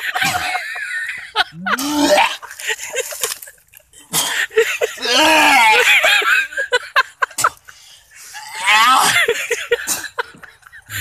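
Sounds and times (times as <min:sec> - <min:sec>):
man's wavering strained cry: 0:05.0 - 0:05.9, 0:08.4 - 0:09.4.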